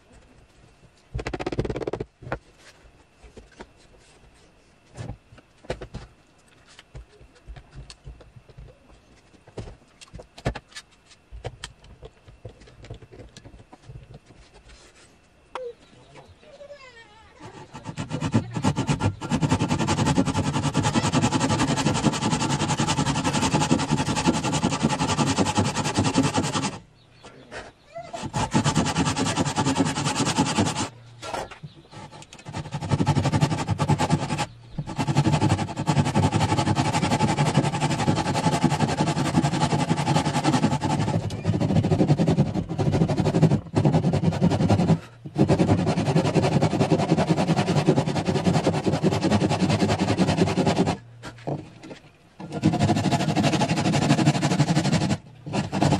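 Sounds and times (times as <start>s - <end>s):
saw cutting wood: 17.4s - 26.8s, 28.0s - 51.6s, 52.4s - 55.9s.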